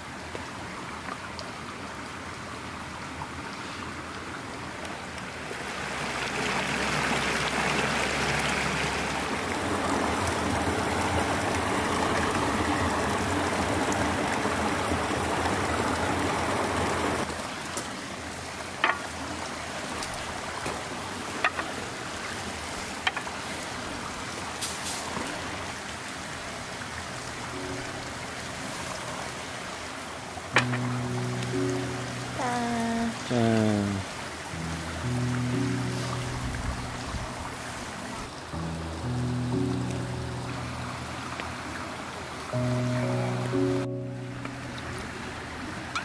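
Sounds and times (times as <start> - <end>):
creek running over rocks: 0.0 - 46.0.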